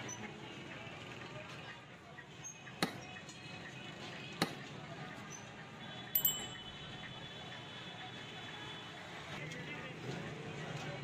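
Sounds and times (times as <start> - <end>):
bell-like chime: 6.2 - 6.8.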